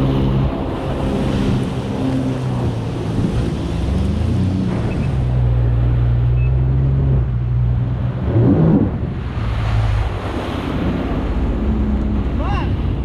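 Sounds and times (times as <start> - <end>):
jet ski engine running: 0.0 - 13.0
wind noise on microphone: 6.3 - 13.0.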